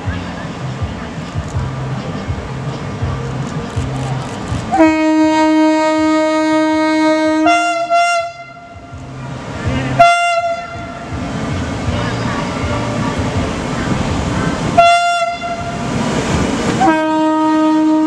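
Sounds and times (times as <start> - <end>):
locomotive horn: 4.7 - 9.0, 9.9 - 11.1, 14.8 - 15.8, 16.8 - 18.0.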